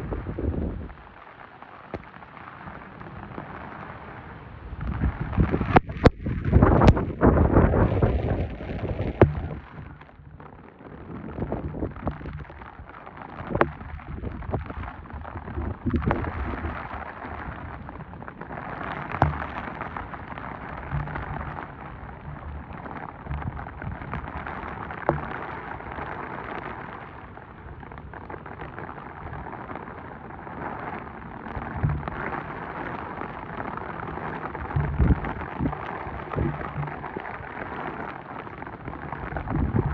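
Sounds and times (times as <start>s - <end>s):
heavy rain on water: 0.0s - 39.9s
low thumps: 4.8s - 27.0s, 31.5s - 39.9s.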